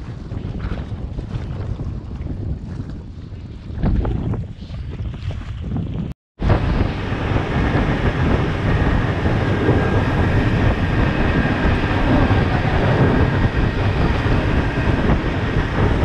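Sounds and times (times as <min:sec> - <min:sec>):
motorboat engine running: 0:06.4 - 0:16.0
water rushing past hull: 0:06.4 - 0:16.0.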